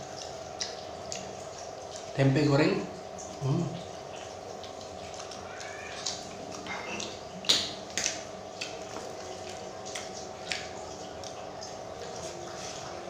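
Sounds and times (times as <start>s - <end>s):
crisp chewing crunches: 3.1s - 13.0s.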